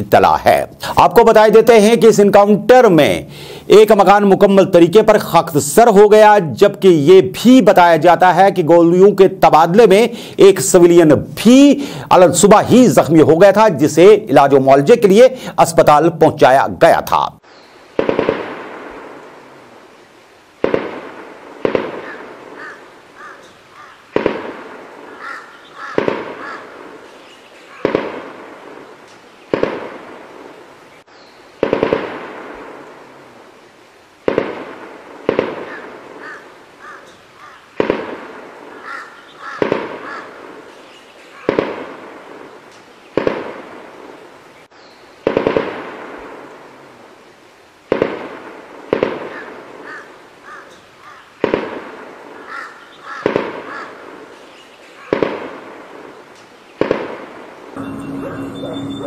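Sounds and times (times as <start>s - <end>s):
echoing gunshots: 18.0s - 19.2s, 20.6s - 22.7s, 24.1s - 25.2s, 25.8s - 27.0s, 27.8s - 28.9s, 29.5s - 30.4s, 31.6s - 32.8s, 34.3s - 36.3s, 37.8s - 38.5s, 39.5s - 40.4s, 41.4s - 42.2s, 43.2s - 43.8s, 45.2s - 46.4s, 47.9s - 49.6s, 51.4s - 52.0s, 53.2s - 54.2s, 55.1s - 56.0s, 56.8s - 57.9s.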